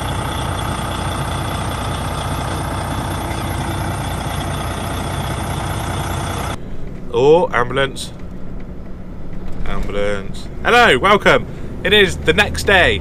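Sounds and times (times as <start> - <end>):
diesel truck engine idling: 0.0 - 6.9.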